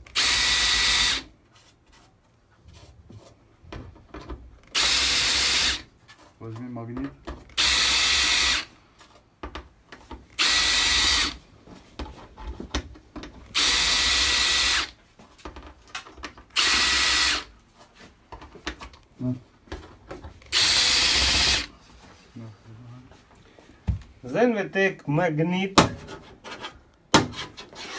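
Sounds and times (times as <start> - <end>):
drill cutting into sheet metal: 0.0 - 1.3, 4.7 - 5.9, 7.6 - 8.7, 10.4 - 11.4, 13.5 - 14.9, 16.6 - 17.5, 20.5 - 21.7.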